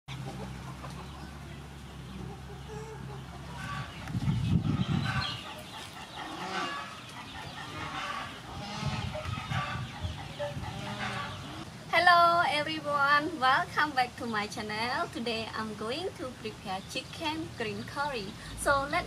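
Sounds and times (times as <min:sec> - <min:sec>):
chickens clucking: 0:00.1 - 0:11.7.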